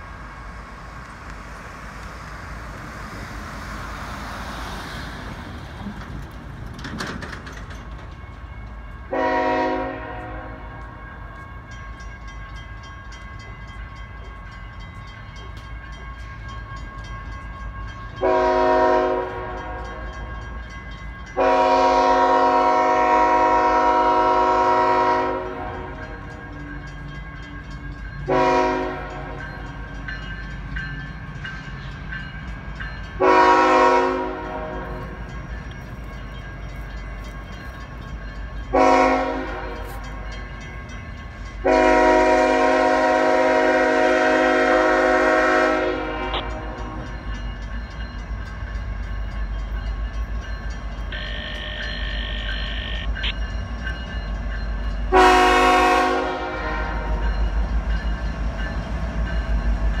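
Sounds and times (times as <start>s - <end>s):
diesel locomotive rumble: 0.0s - 60.0s
locomotive air horn blasts: 9.1s - 10.8s, 18.2s - 20.1s, 21.4s - 26.2s, 28.3s - 29.4s, 33.2s - 35.2s, 38.7s - 40.1s, 41.6s - 47.1s, 51.1s - 53.1s, 55.1s - 57.2s.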